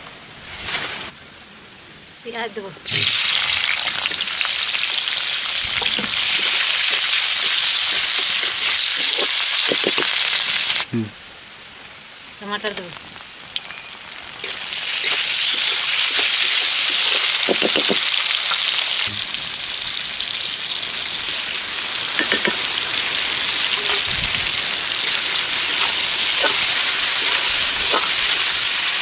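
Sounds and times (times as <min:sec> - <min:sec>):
tomatoes sizzling in hot oil: 0:02.8 - 0:10.9, 0:12.4 - 0:29.0
spoon tapping and scraping pan: 0:22.2 - 0:22.6, 0:25.0 - 0:28.2.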